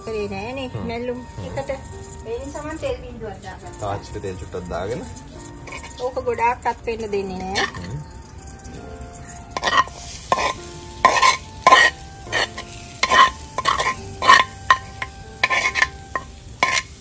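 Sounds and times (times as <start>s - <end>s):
greens sizzling in oil: 0.0s - 17.0s
spoon scraping clay plate: 5.0s - 6.2s, 9.5s - 17.0s
spoon knocking on wok: 9.5s - 17.0s.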